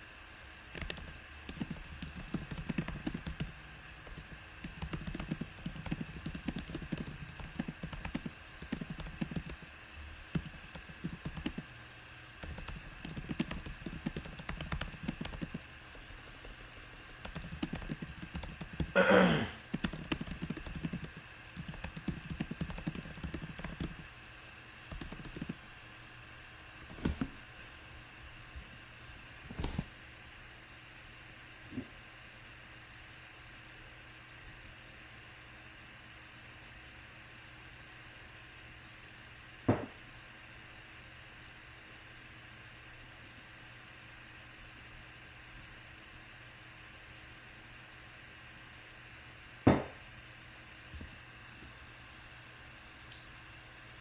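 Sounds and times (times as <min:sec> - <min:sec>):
faint high hum: 0:00.0 - 0:54.0
computer keyboard typing: 0:00.7 - 0:09.7, 0:10.3 - 0:11.7, 0:12.4 - 0:19.0, 0:19.7 - 0:24.1, 0:24.9 - 0:25.6.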